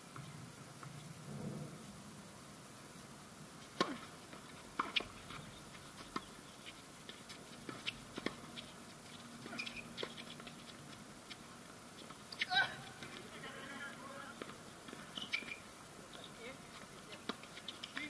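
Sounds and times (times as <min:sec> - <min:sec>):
tennis balls struck by racquets: 0:03.7 - 0:08.7, 0:12.0 - 0:18.0
tennis balls bouncing on hard court: 0:03.8 - 0:11.4, 0:12.0 - 0:18.0.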